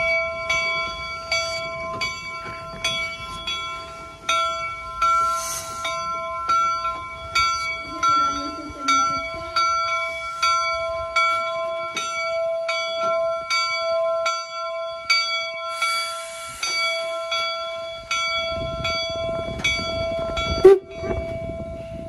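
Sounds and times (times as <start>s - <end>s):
steam locomotive bell ringing: 0.0s - 22.0s
steam hiss: 5.2s - 6.1s, 15.6s - 17.8s.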